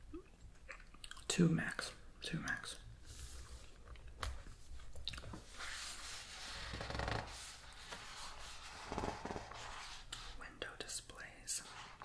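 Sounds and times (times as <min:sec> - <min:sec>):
book pages rustling: 0:03.1 - 0:10.4.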